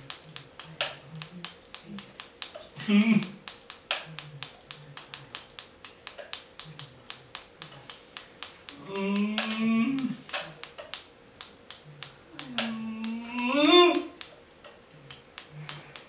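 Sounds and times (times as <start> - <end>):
sharp repeating clicks: 0.0 - 16.0
person wavering cry: 8.8 - 10.2, 12.6 - 14.2.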